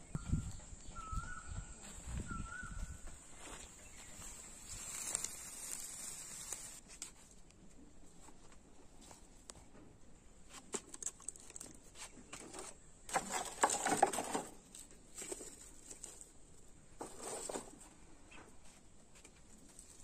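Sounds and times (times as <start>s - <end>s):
straw and splinters rustling: 3.4s - 7.6s, 10.5s - 17.9s.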